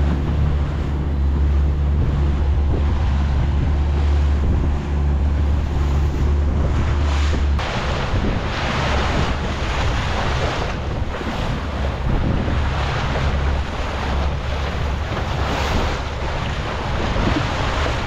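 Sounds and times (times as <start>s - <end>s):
outboard motor drone: 0.0s - 18.0s
water rushing past boat hull: 0.0s - 18.0s
wind buffeting microphone: 0.0s - 18.0s.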